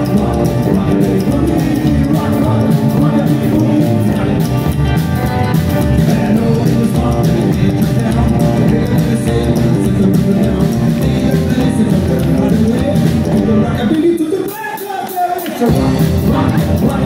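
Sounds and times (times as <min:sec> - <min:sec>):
upright double bass: 0:00.0 - 0:14.0, 0:15.7 - 0:17.0
acoustic rhythm guitar: 0:00.0 - 0:14.4
drum kit: 0:00.0 - 0:17.0
electric guitar: 0:00.0 - 0:17.0.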